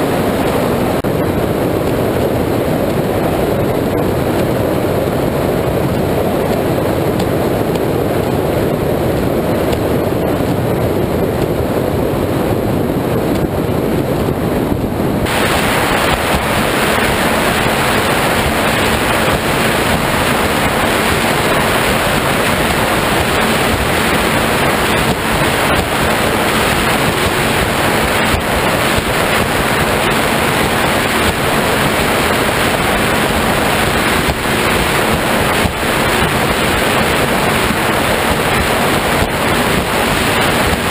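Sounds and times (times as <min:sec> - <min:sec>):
wind buffeting microphone: 0:00.0 - 0:40.9
water spray off hull: 0:15.2 - 0:40.9.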